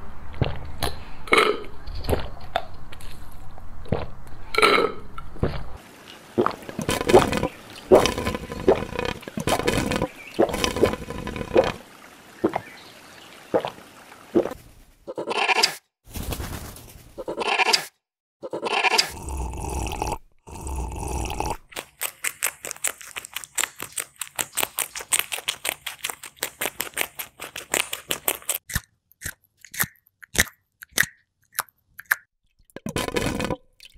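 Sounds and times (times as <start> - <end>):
caterpillar chewing leaf: 6.0 - 11.8, 21.8 - 28.6.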